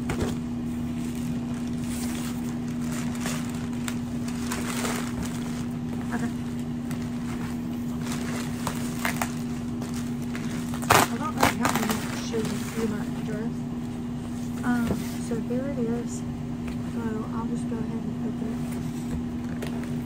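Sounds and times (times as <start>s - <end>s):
plastic bag rustling and crinkling: 0.0s - 13.3s
steady low hum: 0.0s - 20.0s
cardboard scraping: 0.1s - 13.0s.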